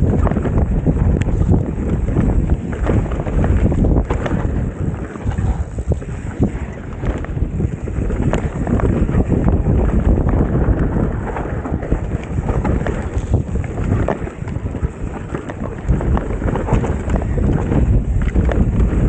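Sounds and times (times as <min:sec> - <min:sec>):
bike rattling and knocking: 0:00.0 - 0:19.0
wind buffeting microphone: 0:00.0 - 0:19.0.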